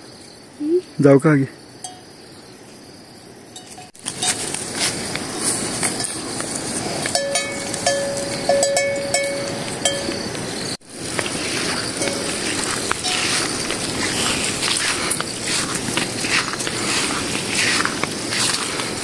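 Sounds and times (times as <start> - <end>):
steady ringing tone: 1.8 - 2.2, 6.0 - 10.8, 11.9 - 14.3
footsteps on dry grass: 3.9 - 19.0
light clinks: 5.9 - 10.4.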